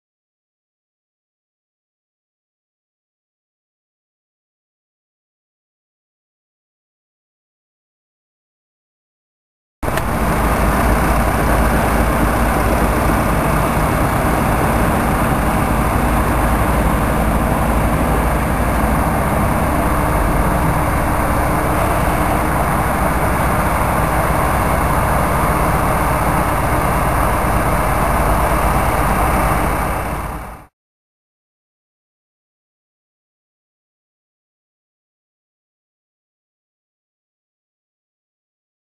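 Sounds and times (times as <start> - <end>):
heavy machinery engine running: 9.8 - 30.7.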